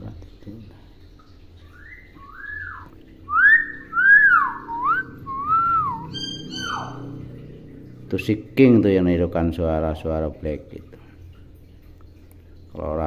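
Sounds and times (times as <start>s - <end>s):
myna bird whistling: 1.8s - 7.0s.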